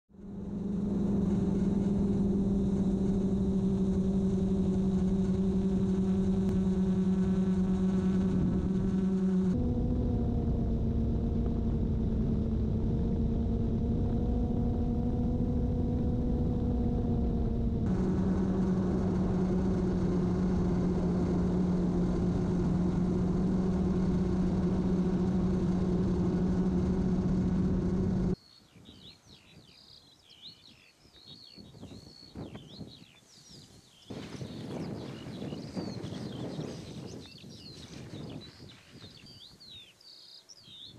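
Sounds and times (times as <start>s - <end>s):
drone propellers humming: 0.1s - 28.4s
small birds chirping: 27.6s - 40.9s.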